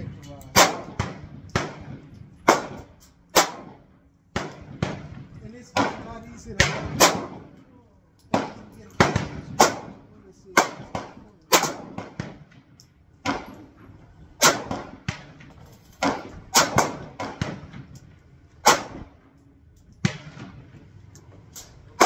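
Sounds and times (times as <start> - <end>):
gunshots with echo: 0.5 - 3.8, 4.4 - 7.5, 8.3 - 13.6, 14.4 - 17.9, 18.6 - 19.1.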